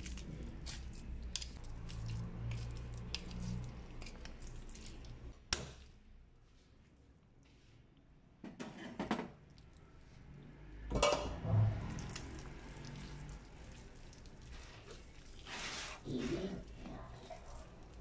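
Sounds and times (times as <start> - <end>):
wet rustling of raw chicken: 11.8 - 18.0.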